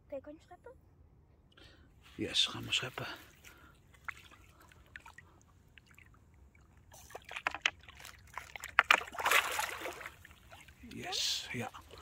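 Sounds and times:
water splashing and sloshing: 2.2s - 12.0s.

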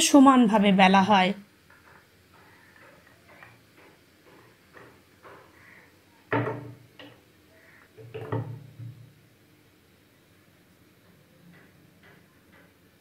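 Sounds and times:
rolling pin knocking on board: 6.3s - 7.2s, 8.0s - 9.1s.

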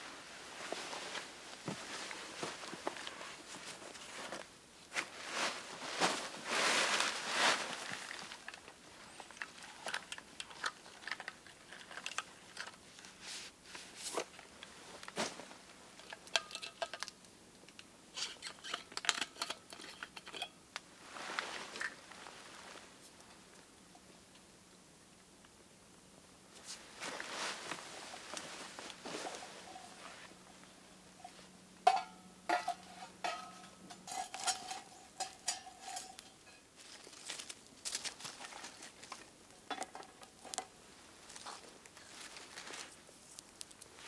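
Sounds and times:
clothing and gear rustling: 0.0s - 9.7s, 21.0s - 23.1s, 26.5s - 31.4s, 40.4s - 43.1s
metal thermos clicks and clinks: 16.0s - 17.1s, 18.4s - 20.6s, 31.9s - 36.6s.

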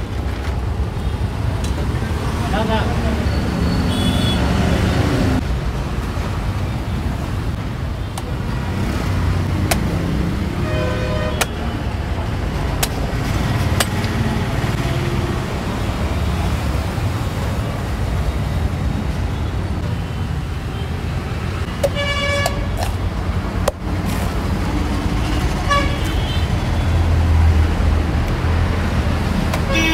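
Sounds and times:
street traffic rumble: 0.0s - 29.9s
machete chopping coconut: 9.6s - 10.0s, 12.8s - 14.2s.

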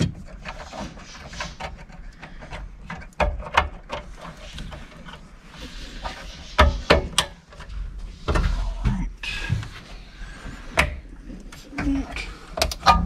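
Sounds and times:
clicks and knocks of handled parts: 0.0s - 5.3s, 10.8s - 13.0s.

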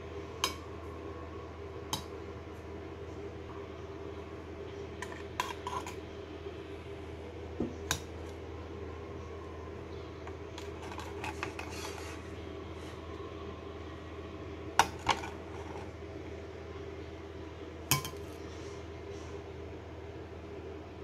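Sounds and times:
steady low hum: 0.0s - 21.0s
metal tongs scraping a plate: 5.0s - 6.0s, 10.6s - 12.2s.

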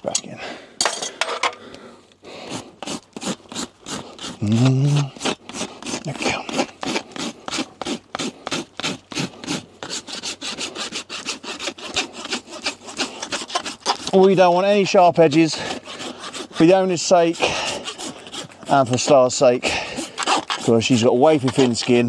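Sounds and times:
rasp filing hoof: 2.4s - 22.0s.

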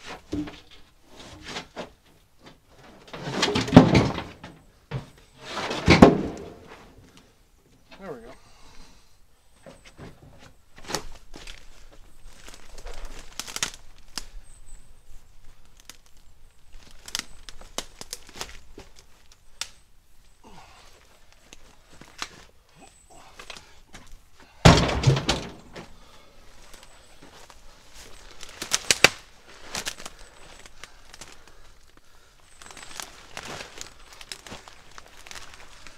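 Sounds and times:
heavy log thud on ground: 3.6s - 6.8s, 24.6s - 26.0s
footsteps crackling through dry leaves: 10.9s - 14.4s, 15.0s - 19.6s, 26.1s - 35.9s.

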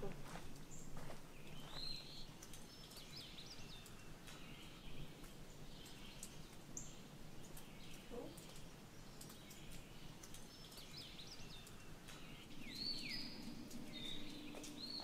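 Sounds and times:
songbirds whistling and chirping: 1.4s - 5.1s, 9.2s - 15.0s.

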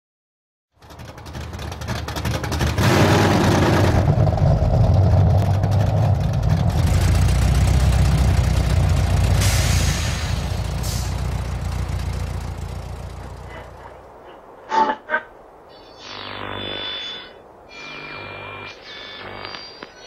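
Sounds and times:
low engine-like rumble: 0.8s - 14.7s
brief hiss: 9.4s - 11.3s.

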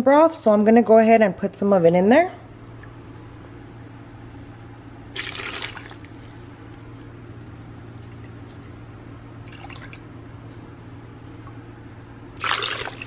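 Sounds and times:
broth pouring and splashing: 5.2s - 6.4s, 9.4s - 10.0s, 12.4s - 13.0s
soft liquid splash: 5.2s - 6.4s, 9.4s - 10.0s, 12.4s - 13.0s.

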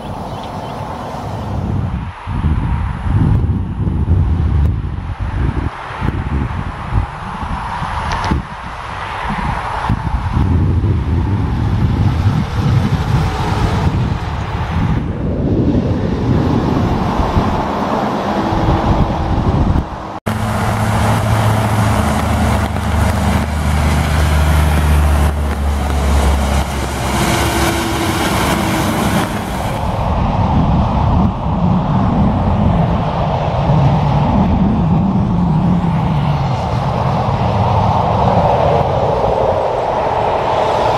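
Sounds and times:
diesel trucks passing: 0.0s - 40.9s
truck engine low drone: 9.2s - 40.9s
tyres hissing on wet road: 20.3s - 30.1s.

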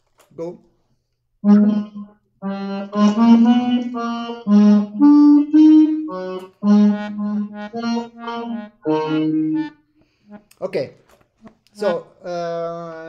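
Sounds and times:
accordion playing detached notes: 1.4s - 10.5s.

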